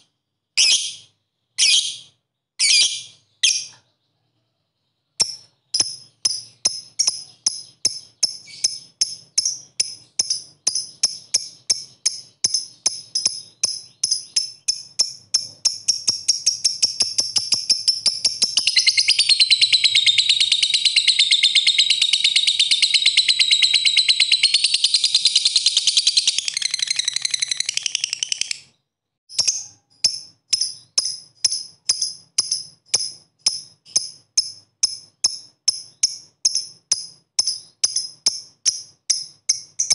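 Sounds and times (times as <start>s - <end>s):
lovebird chirping: 0.0s - 39.9s
lovebird rattling trill: 5.2s - 28.7s.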